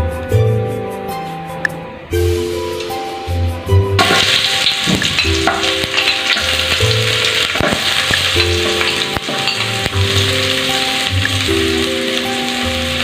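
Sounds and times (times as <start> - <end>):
onions sizzling in hot oil: 4.0 - 13.0.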